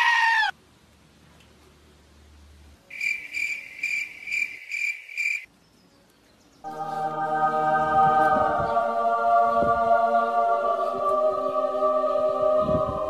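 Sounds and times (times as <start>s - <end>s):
cricket chirping: 2.9s - 5.5s.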